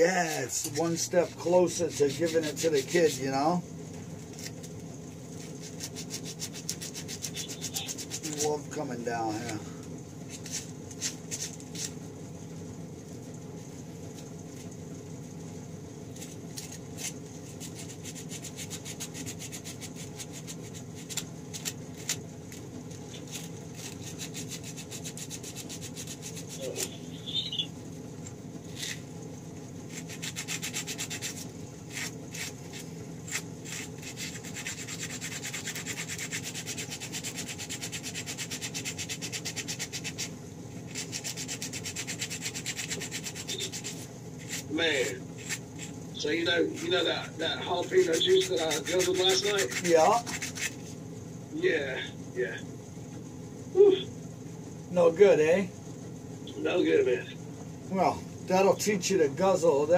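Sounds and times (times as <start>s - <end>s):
hand rubbing and scraping: 0.0s - 3.2s, 40.9s - 46.0s, 47.8s - 51.0s
low hum: 0.0s - 30.6s.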